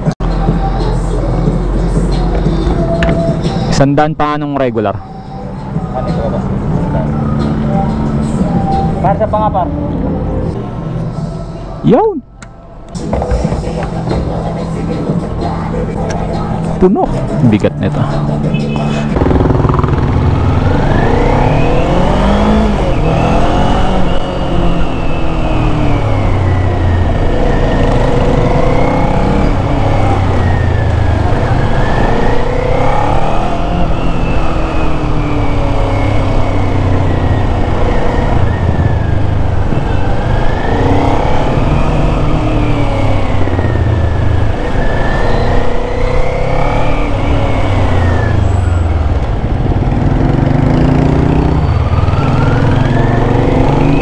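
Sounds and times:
motorcycle engine revving: 13.0s - 54.0s.

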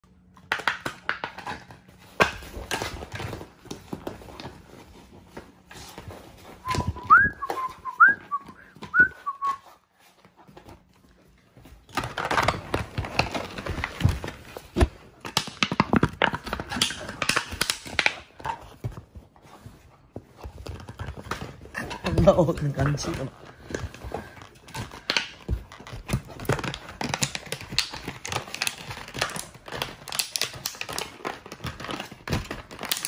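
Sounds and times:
puppy chewing plastic bottle: 10.4s - 19.2s, 20.2s - 33.0s.

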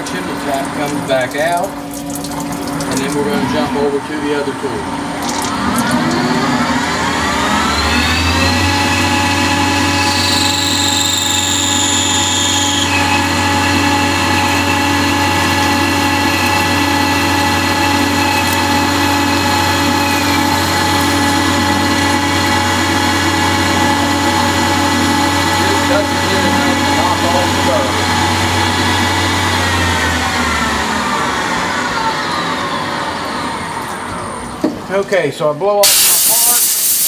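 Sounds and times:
lathe spindle whine: 4.4s - 34.6s
high-pitched whine: 5.2s - 34.6s.

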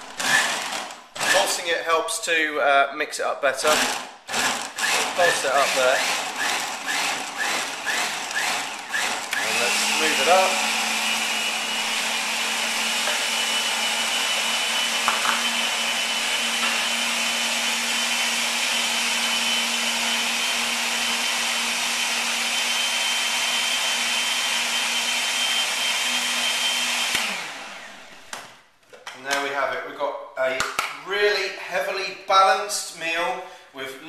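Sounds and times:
blender motor running: 0.0s - 1.6s, 3.6s - 28.4s.

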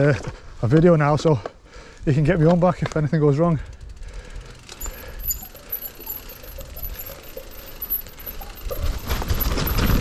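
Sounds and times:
bicycle freehub ticking: 2.7s - 10.0s
tyres rushing on dirt: 4.6s - 10.0s.

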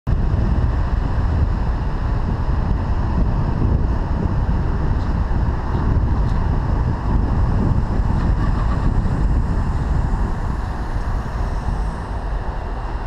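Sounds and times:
car driving rumble: 0.1s - 13.0s
wind buffeting microphone: 0.1s - 13.0s.

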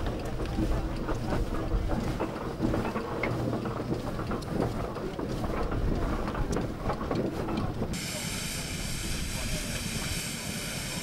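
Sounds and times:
wheels crunching on gravel: 0.0s - 8.0s
steam engine low rumble: 0.0s - 11.0s.

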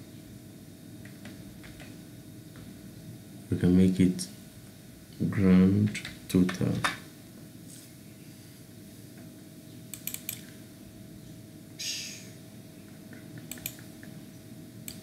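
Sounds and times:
faint steady hum: 0.0s - 15.0s
mouse and keyboard clicks: 9.9s - 10.4s, 13.4s - 13.9s.

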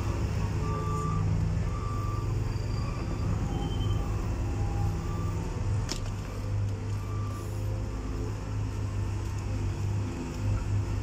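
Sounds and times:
diesel engines rumbling: 0.0s - 11.0s
faint short beeps: 0.7s - 5.4s.

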